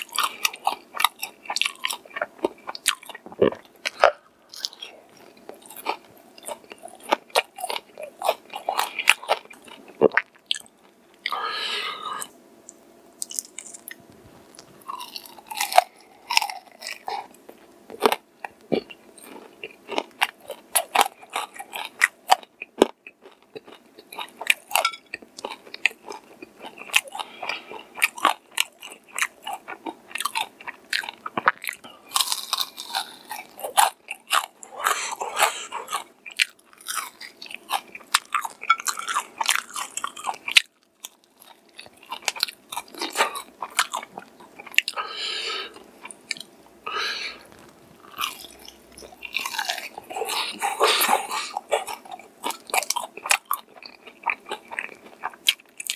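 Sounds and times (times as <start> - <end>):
crunchy chewing: 0.0 - 11.4, 13.2 - 55.9
biting crispy food: 13.2 - 45.0, 47.3 - 55.9.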